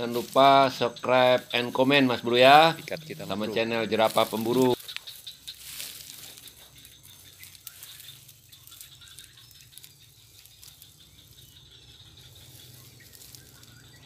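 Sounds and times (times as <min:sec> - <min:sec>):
dry stems rattling and rustling: 0:00.0 - 0:14.0.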